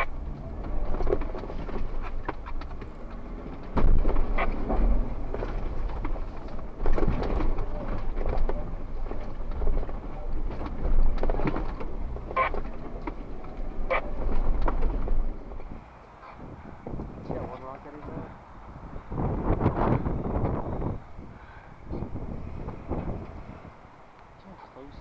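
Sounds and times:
wind buffeting microphone: 0:00.0 - 0:24.1
vehicle low rumble: 0:00.0 - 0:25.0
short squeaks: 0:12.3 - 0:12.9.

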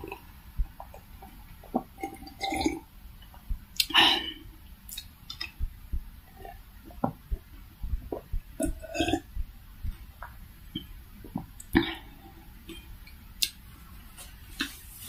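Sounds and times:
juice sipped and swallowed: 0:00.8 - 0:02.8
wet mouth and lip clicks: 0:03.3 - 0:04.0, 0:04.9 - 0:05.7, 0:13.4 - 0:13.6.

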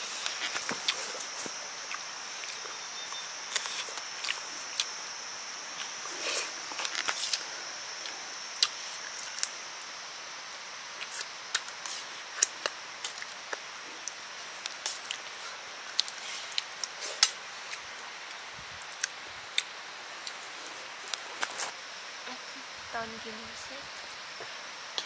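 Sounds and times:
high-pitched hiss: 0:00.0 - 0:25.0.

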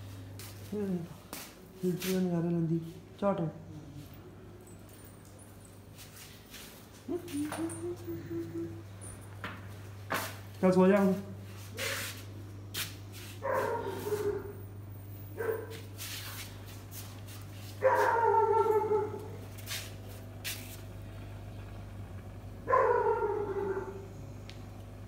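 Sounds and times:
dog whining: 0:22.7 - 0:24.2.

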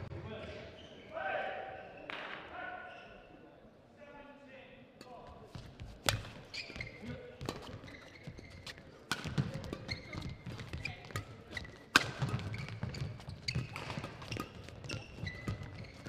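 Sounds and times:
shoes squeaking on court: 0:05.3 - 0:16.0
racket striking shuttlecock: 0:06.0 - 0:06.5, 0:08.6 - 0:15.8.

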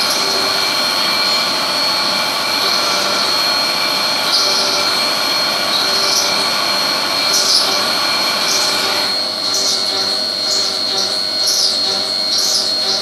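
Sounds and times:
milling machine cutting steel: 0:00.0 - 0:13.0.

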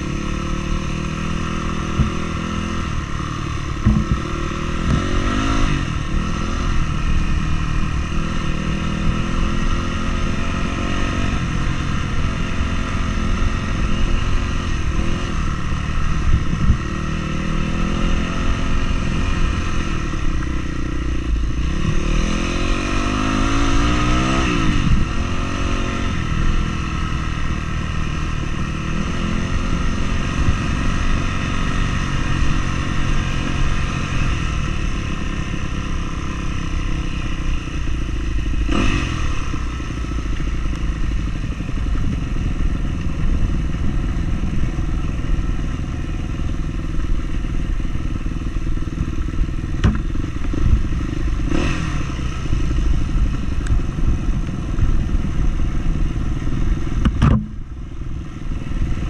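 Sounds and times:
vehicle engine revving uphill: 0:00.0 - 0:59.0.

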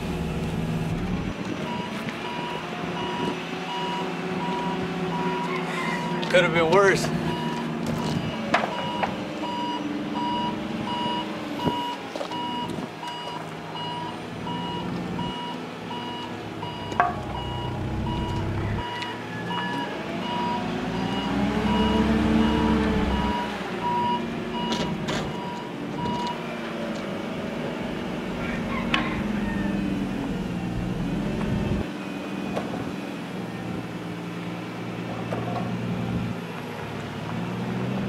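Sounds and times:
forklift engine running: 0:00.0 - 0:38.0
forklift reverse alarm beeping: 0:01.6 - 0:06.2, 0:07.2 - 0:26.4.

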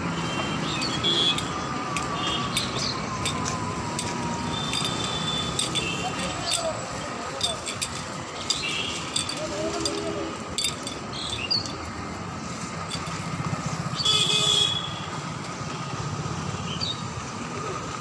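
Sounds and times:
street hum: 0:00.0 - 0:18.0
light clinks: 0:00.7 - 0:12.0, 0:12.9 - 0:13.3.

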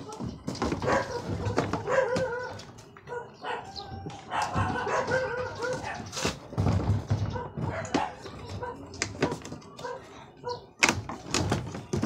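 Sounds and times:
plastic cabinet knocking and clattering: 0:00.0 - 0:02.7, 0:03.9 - 0:09.8, 0:10.8 - 0:12.0
dog yapping: 0:00.8 - 0:06.1, 0:07.3 - 0:10.7.

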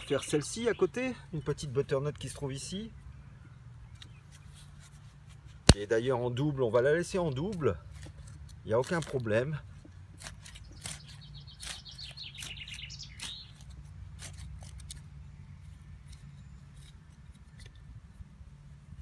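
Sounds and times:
trowel scraping soil: 0:07.3 - 0:18.2
bird trilling: 0:10.7 - 0:13.6.

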